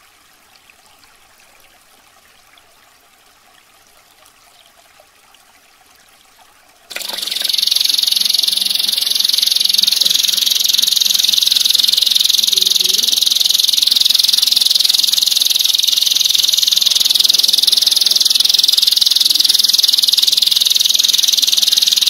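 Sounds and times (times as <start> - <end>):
faint trickling water: 0.0 - 22.0
canary singing trill: 6.9 - 22.0.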